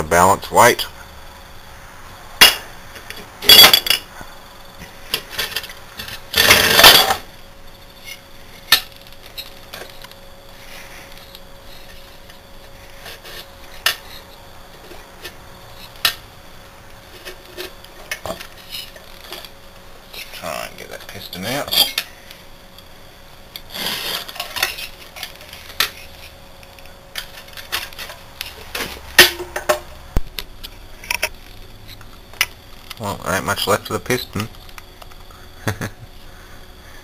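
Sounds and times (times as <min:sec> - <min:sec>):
metal parts clinking and clattering: 0:03.4 - 0:04.1, 0:05.1 - 0:07.2, 0:21.5 - 0:22.1, 0:24.0 - 0:26.3.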